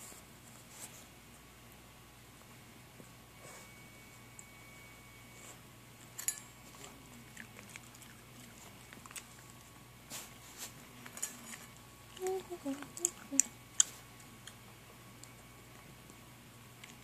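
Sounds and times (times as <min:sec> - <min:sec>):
dog crunching kibble in metal bowl: 0:10.8 - 0:11.8.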